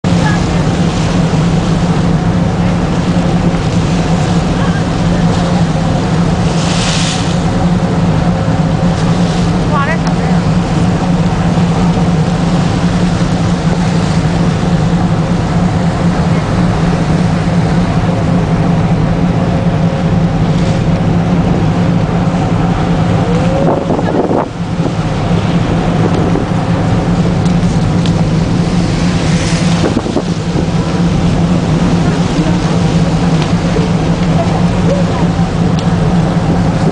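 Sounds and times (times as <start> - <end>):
ship engine drone: 0.0 - 36.9.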